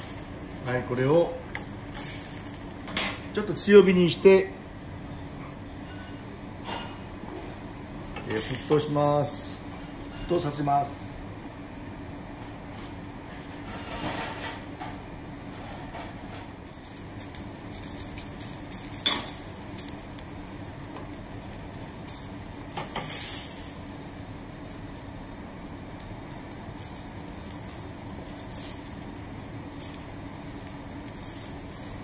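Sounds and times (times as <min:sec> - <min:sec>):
water sizzling in saucepan: 0:00.0 - 0:03.3, 0:11.7 - 0:32.0
gas flame: 0:00.0 - 0:32.0.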